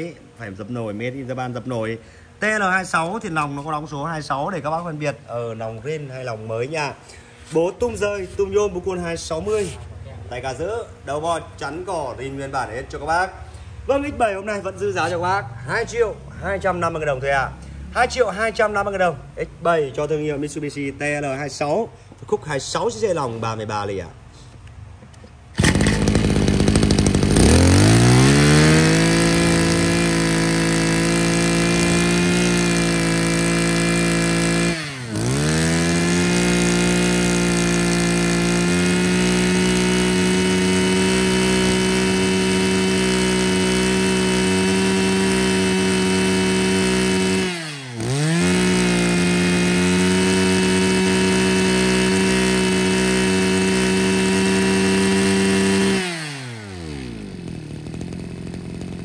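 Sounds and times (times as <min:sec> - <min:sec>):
brush cutter engine revving: 0:25.4 - 0:59.0.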